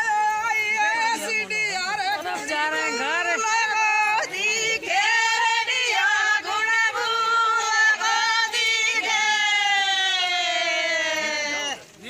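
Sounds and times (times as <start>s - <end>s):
women singing in chorus: 0.0s - 11.9s.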